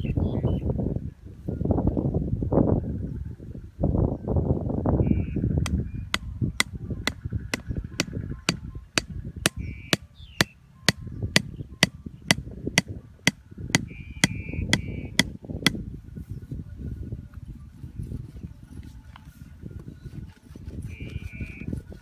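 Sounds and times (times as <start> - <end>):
hatchet knocking on wooden stake: 14.2 - 15.3.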